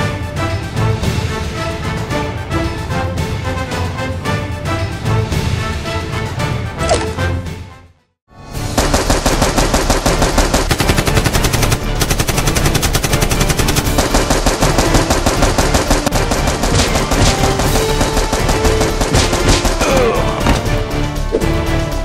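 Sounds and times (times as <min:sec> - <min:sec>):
rapid automatic gunfire: 0:08.7 - 0:19.9.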